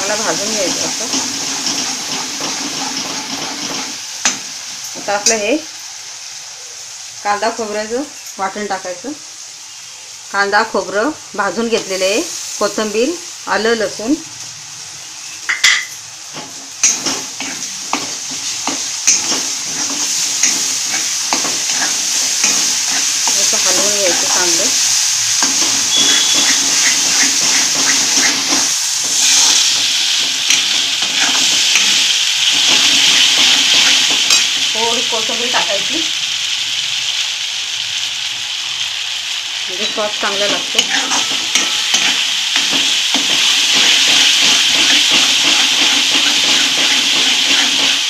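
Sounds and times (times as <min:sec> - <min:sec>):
spatula scraping a wok: 0:00.0 - 0:04.4, 0:16.3 - 0:34.6, 0:39.8 - 0:48.0
paste sizzling in oil: 0:00.0 - 0:48.0.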